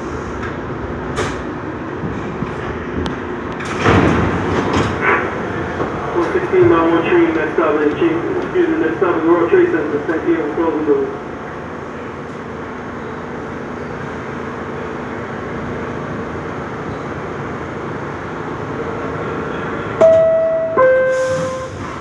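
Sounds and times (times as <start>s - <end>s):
subway car interior noise: 0.0s - 22.0s
two-note door chime: 20.0s - 21.2s.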